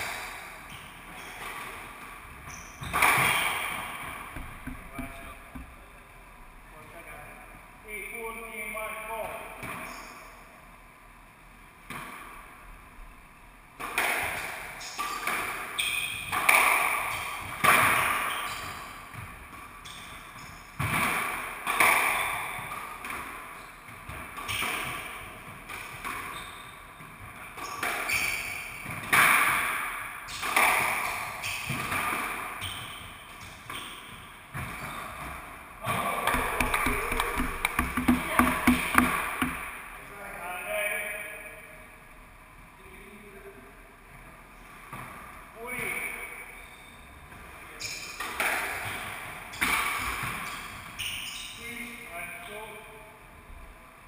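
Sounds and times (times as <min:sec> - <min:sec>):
squash ball hitting rackets and walls: 0:00.0 - 0:06.6, 0:11.8 - 0:12.5, 0:13.8 - 0:40.1, 0:47.3 - 0:51.2.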